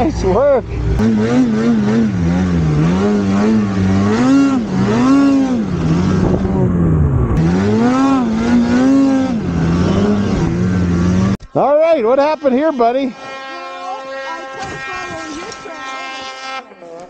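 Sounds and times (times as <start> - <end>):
snowmobile engine revving: 0.0 - 17.0.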